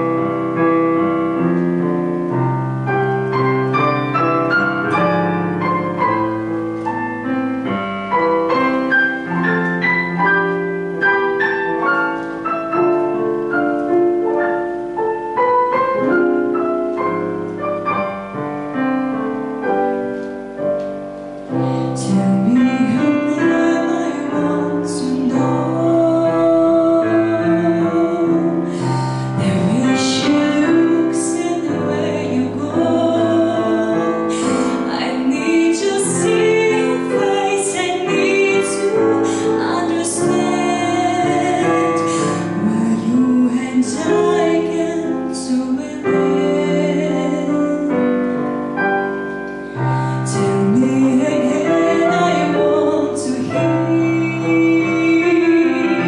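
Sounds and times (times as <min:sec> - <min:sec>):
piano chords: 0:00.0 - 0:56.0
woman singing a ballad: 0:21.6 - 0:48.5, 0:49.8 - 0:56.0.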